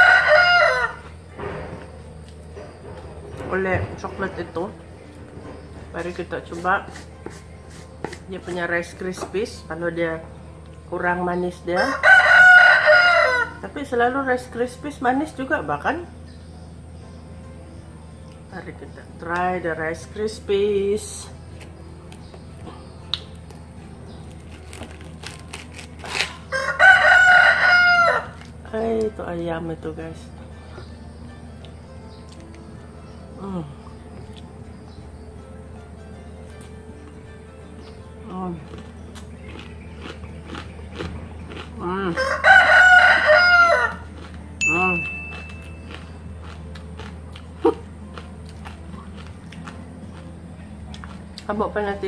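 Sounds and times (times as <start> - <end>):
rooster crowing: 0.0 - 1.2, 11.8 - 13.6, 26.5 - 28.5, 42.1 - 44.3.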